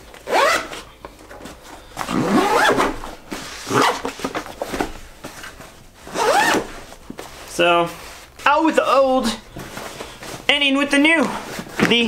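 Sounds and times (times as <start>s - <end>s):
fabric handling: 0.0s - 12.0s
backpack zipper pulled: 0.3s - 0.8s, 2.0s - 3.0s, 6.1s - 6.8s.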